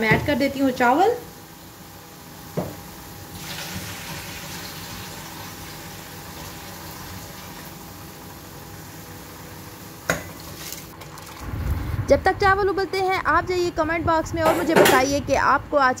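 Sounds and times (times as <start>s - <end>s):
pot of water boiling: 0.4s - 12.0s.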